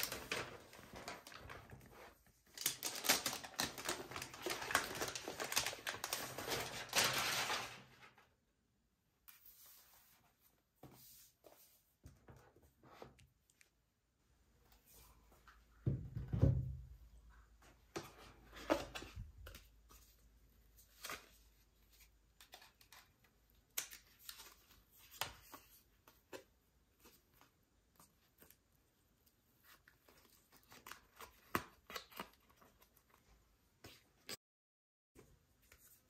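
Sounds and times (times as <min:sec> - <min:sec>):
rustles taps and clicks of packaging: 0:00.0 - 0:08.1.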